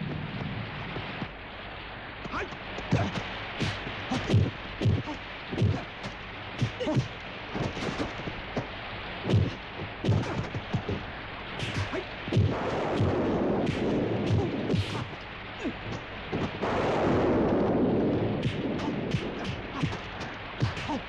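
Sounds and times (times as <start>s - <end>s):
rain hissing: 0.0s - 21.0s
swishes: 9.2s - 21.0s
punch and block hits: 9.3s - 11.0s, 11.6s - 15.1s, 18.4s - 21.0s.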